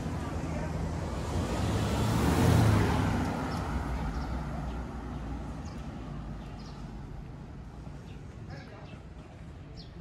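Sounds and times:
vehicle passing with engine hum: 0:00.0 - 0:08.1.

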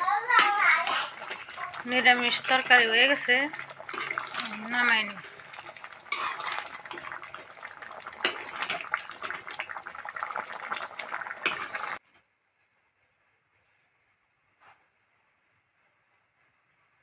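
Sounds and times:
metal ladle scraping a pan: 0:00.3 - 0:09.8.

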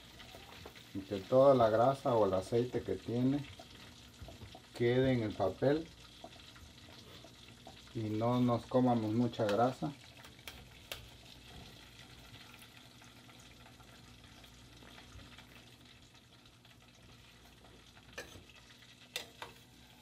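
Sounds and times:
frying oil sizzling: 0:00.0 - 0:20.0
metal utensils clicking on pot: 0:19.1 - 0:19.6.

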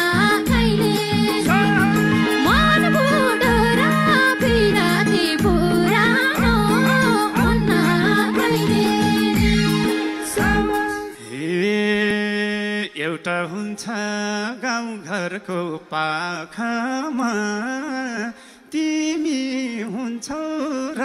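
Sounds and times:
man singing into a microphone: 0:01.4 - 0:05.5, 0:10.4 - 0:21.0.

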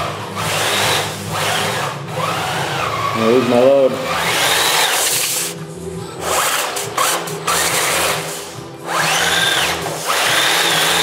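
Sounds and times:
toy truck drivetrain whining: 0:04.1 - 0:05.6, 0:06.2 - 0:11.0.

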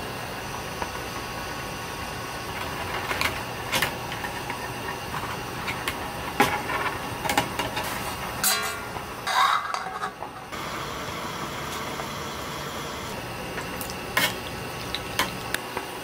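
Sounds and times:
metal basket clinking against pot: 0:08.4 - 0:10.1.

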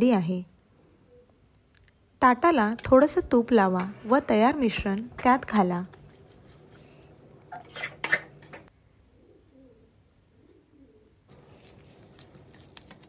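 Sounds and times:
bird cooing: 0:00.9 - 0:01.4, 0:09.1 - 0:11.3.

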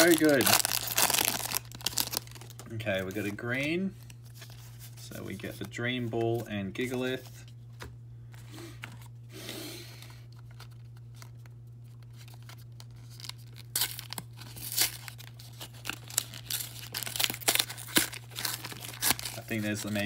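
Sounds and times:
foil wrapper crinkling and tearing: 0:00.0 - 0:03.4, 0:10.2 - 0:20.0
steady low hum: 0:00.0 - 0:20.0.

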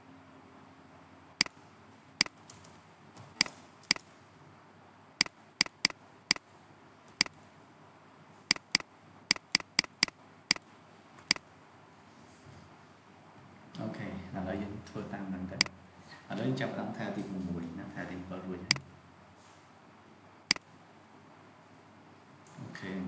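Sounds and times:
faint steady hiss: 0:00.0 - 0:23.0
computer mouse clicking: 0:03.4 - 0:04.0, 0:05.6 - 0:06.0, 0:08.5 - 0:10.1.

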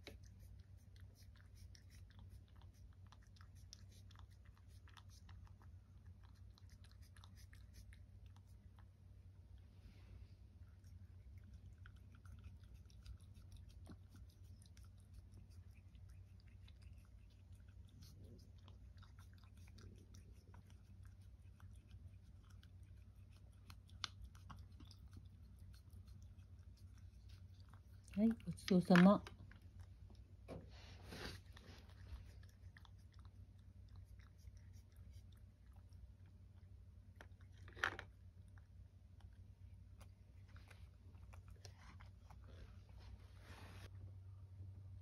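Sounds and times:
cat chewing food: 0:00.0 - 0:45.0.

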